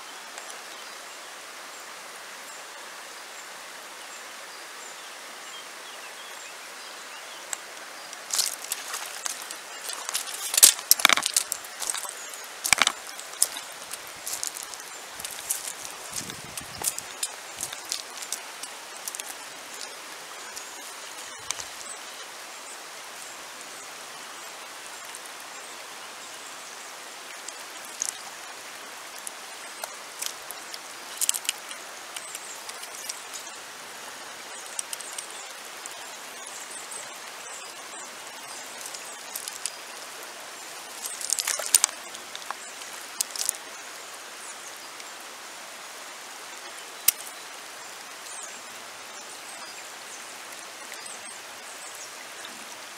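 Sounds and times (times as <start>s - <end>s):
water ticks and splashes: 0.0s - 1.0s, 7.3s - 52.9s
river water over stones: 0.0s - 52.9s.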